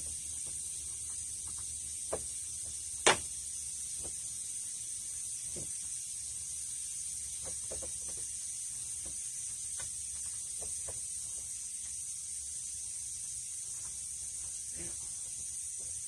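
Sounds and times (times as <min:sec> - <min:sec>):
steady high-pitched hiss: 0:00.0 - 0:16.0.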